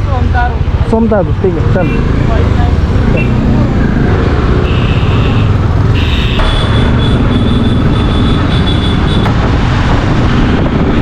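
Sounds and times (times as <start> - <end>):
motorcycle engine and road rumble: 0.0 - 11.0
wind buffeting microphone: 6.4 - 11.0.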